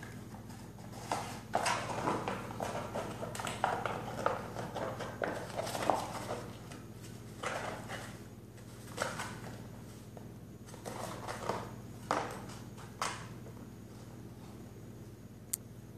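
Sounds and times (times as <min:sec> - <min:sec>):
steady low hum: 0:00.0 - 0:15.9
cardboard tube scraping on tile: 0:00.5 - 0:08.2.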